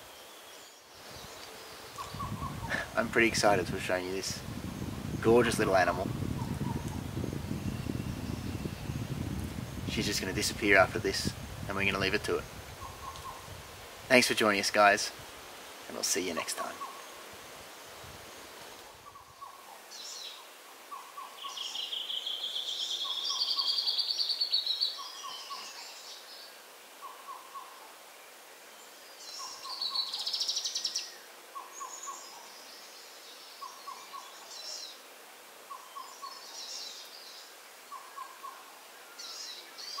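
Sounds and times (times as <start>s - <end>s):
high trilling bird song: 0.6s - 2.8s, 19.0s - 26.2s
scattered bird chirps: 0.8s - 2.8s.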